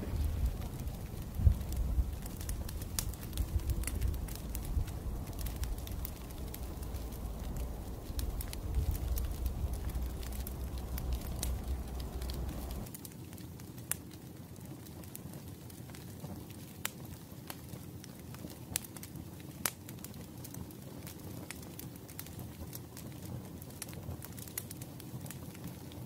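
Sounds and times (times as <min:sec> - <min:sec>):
low rumble: 0:00.0 - 0:12.9
wood fire crackling and popping: 0:00.0 - 0:26.0.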